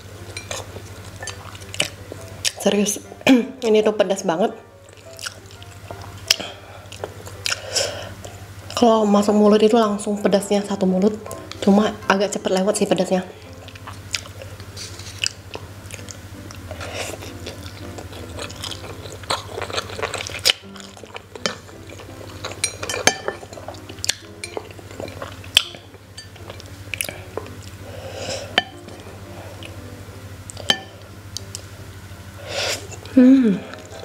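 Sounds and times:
chewing: 4.8s - 7.6s, 13.5s - 25.8s, 26.4s - 27.8s.

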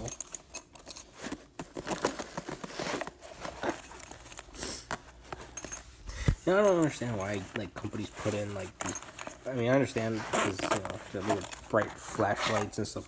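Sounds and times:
fabric rustling and crinkling: 0.9s - 13.0s
light clinks: 5.4s - 7.8s.

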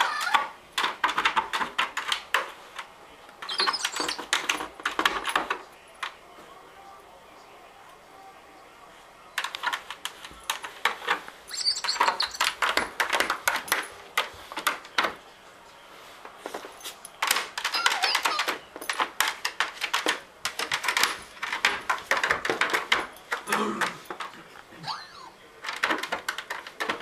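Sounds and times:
toy clattering on hard plastic: 0.0s - 6.2s, 9.4s - 15.3s, 16.2s - 24.7s, 25.5s - 27.0s
faint high squeaks: 3.4s - 4.4s, 11.5s - 12.6s, 17.7s - 18.5s.

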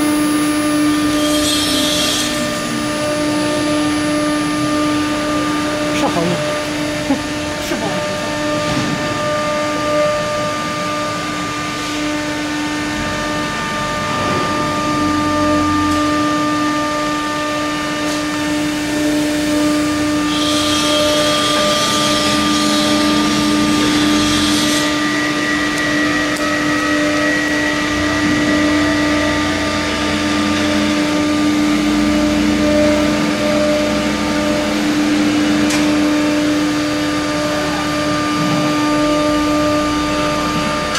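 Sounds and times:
router spindles whining: 0.0s - 40.9s
router bits cutting wood: 0.1s - 10.1s, 19.0s - 31.1s.

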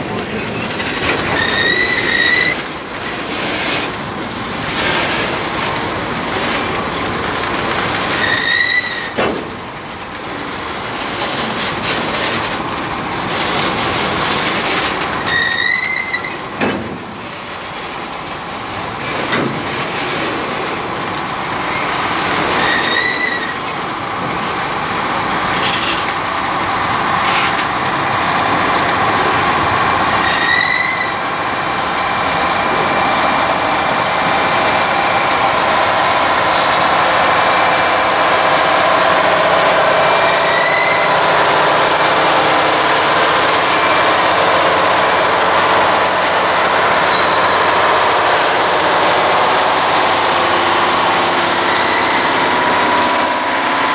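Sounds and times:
wheel squeals: 0.0s - 17.5s, 18.2s - 20.5s, 21.2s - 31.4s, 37.8s - 48.1s, 50.9s - 53.4s
train wheels rumbling on rail: 0.0s - 53.9s.

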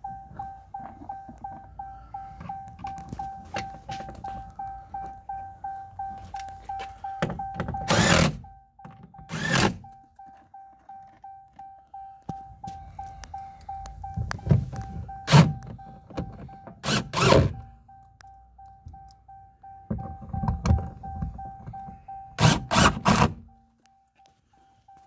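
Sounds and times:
door-open warning chime: 0.0s - 25.0s.

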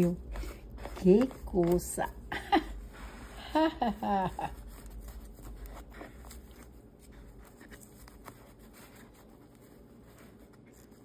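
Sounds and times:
soft rubbing: 0.0s - 11.0s.

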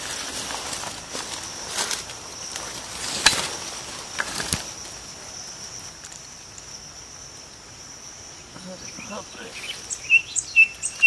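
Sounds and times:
hands rustling dry leaves: 0.0s - 6.6s
high insect drone: 0.0s - 11.0s.

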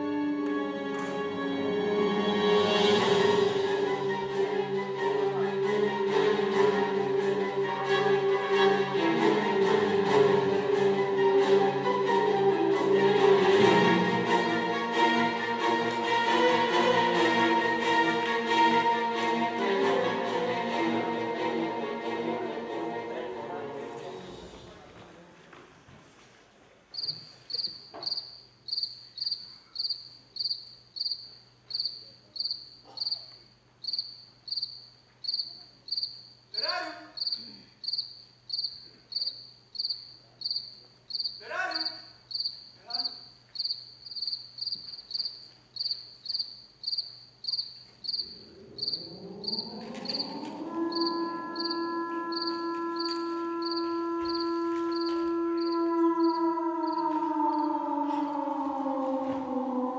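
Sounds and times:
crickets chirping: 26.9s - 59.9s
brief falling calls: 33.9s - 59.9s
musical drone chord: 48.5s - 59.9s.

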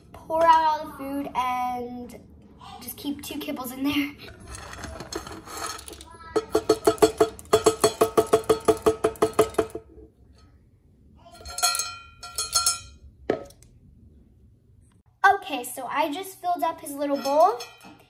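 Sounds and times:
metal bowl clinking against glass jar: 4.8s - 9.8s, 11.4s - 13.1s, 17.0s - 18.0s.

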